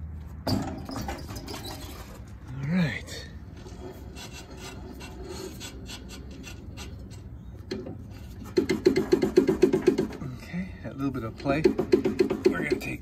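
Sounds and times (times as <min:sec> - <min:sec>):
metal parts scraping: 0:00.5 - 0:02.4, 0:03.4 - 0:09.8.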